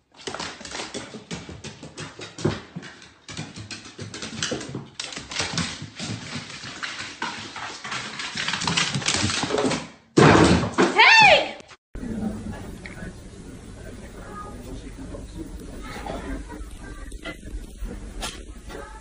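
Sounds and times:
dog claws clattering on wooden stairs: 0:00.1 - 0:10.0.

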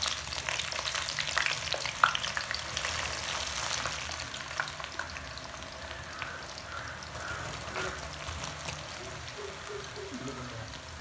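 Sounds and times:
food sizzling in hot oil: 0:00.0 - 0:11.0
oil crackling and popping: 0:00.0 - 0:11.0.

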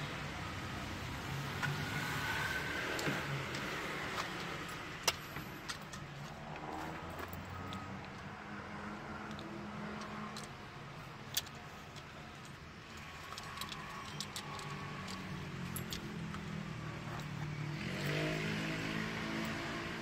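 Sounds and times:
small metal parts clicking: 0:11.2 - 0:16.5.

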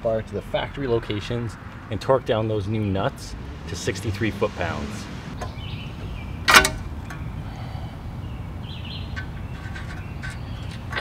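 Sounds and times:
steady low rumble: 0:02.7 - 0:09.5
sharp metallic clack: 0:06.4 - 0:07.3.

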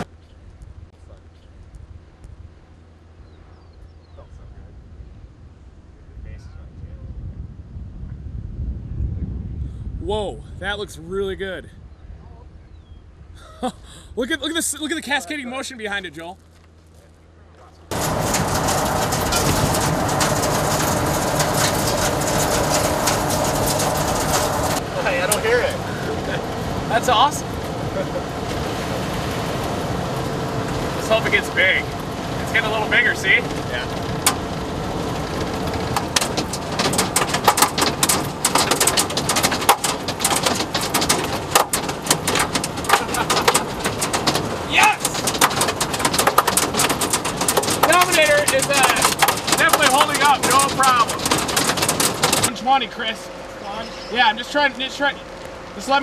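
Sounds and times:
faint low vehicle hum: 0:00.0 - 0:56.0
storm wind and rain rushing: 0:06.3 - 0:12.2, 0:17.9 - 0:56.0
hail hitting car: 0:17.9 - 0:53.1
raindrops crackling on vehicle: 0:17.9 - 0:56.0.

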